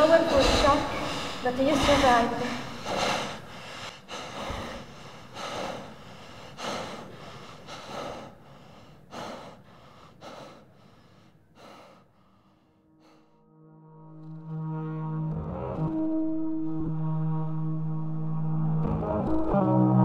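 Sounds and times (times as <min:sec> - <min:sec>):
man gasping breaths: 0:00.3 - 0:13.3.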